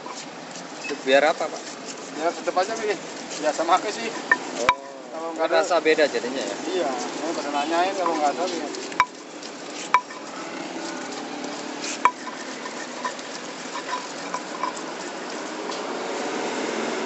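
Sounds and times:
stone pestle grinding in mortar: 0.0 - 5.1, 6.2 - 16.8
pestle knocking on stone: 9.9 - 10.3, 12.0 - 14.8.

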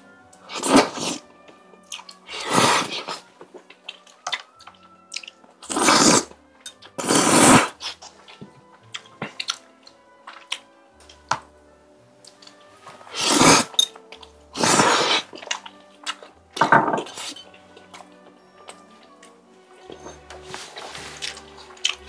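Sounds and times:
soft background music: 0.0 - 22.0
wet chewing: 0.4 - 11.6, 12.2 - 16.5, 17.1 - 22.0
person slurping from a bowl: 0.5 - 1.2, 2.3 - 3.3, 5.6 - 6.3, 7.0 - 8.0, 13.0 - 13.9, 14.5 - 15.6, 17.0 - 17.5.

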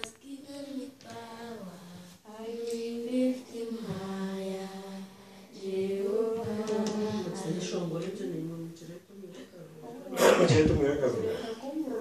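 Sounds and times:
children and women singing: 0.0 - 9.1.

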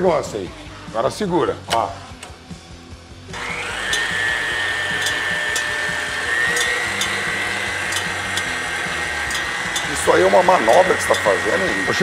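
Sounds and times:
stand mixer motor whining: 3.3 - 12.0.

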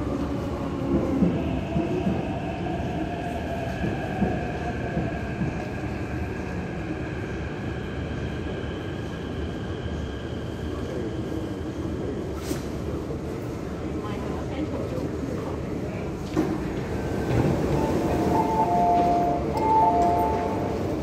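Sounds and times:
train wheels rumbling: 15.2 - 21.0.

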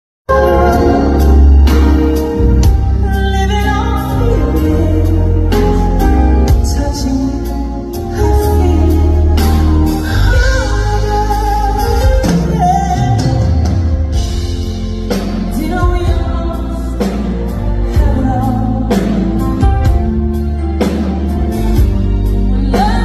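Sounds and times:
bass: 0.3 - 23.0
woman singing into a microphone: 2.9 - 13.9, 15.5 - 19.6, 22.4 - 23.0.

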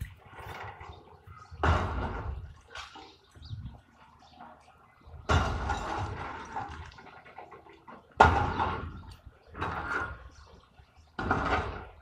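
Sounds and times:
rubble crashing down: 5.3 - 7.3.

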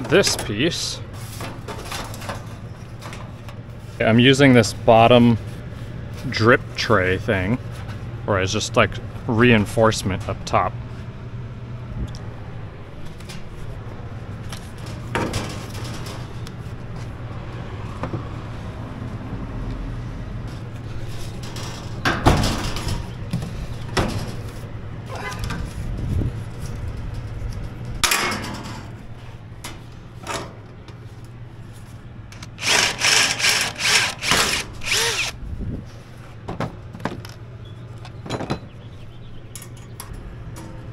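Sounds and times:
steady low hum: 0.0 - 38.2
cordless drill driving screw: 32.4 - 35.4.

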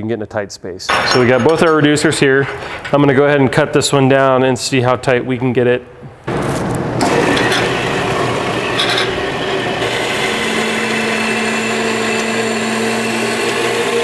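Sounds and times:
bandsaw cutting steel: 7.0 - 14.0.

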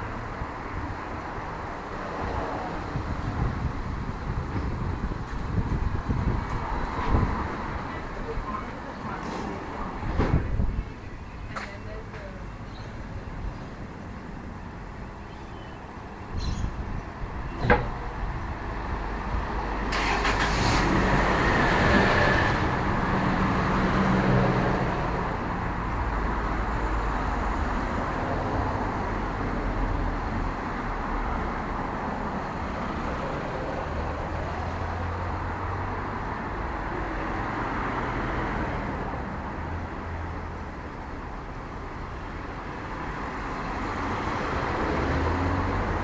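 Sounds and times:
vehicles passing close by: 0.0 - 46.0.

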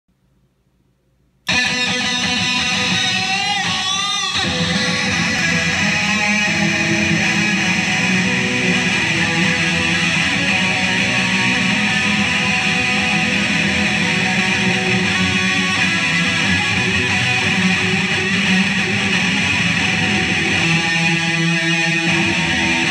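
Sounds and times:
distorted electric guitar drone: 1.5 - 22.9.

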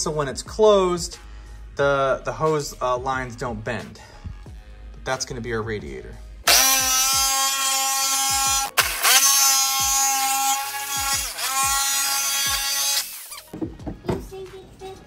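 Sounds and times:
jigsaw cutting plastic: 6.5 - 13.5.

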